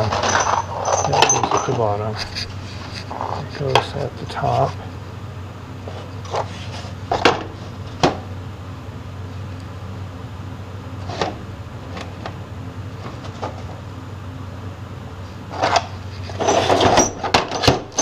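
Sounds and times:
metal parts clacking into box: 0.0s - 1.8s
steady low hum: 0.0s - 18.0s.

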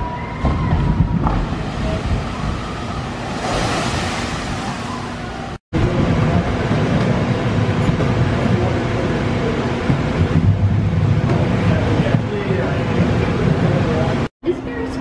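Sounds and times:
boat splashing into water: 0.4s - 5.6s
rumble of busy indoor arcade: 4.5s - 15.0s.

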